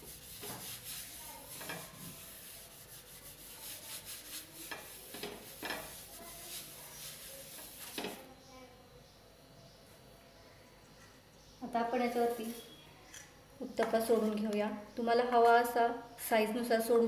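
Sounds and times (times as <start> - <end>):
tissue rubbing on metal pan: 0.0 - 8.3.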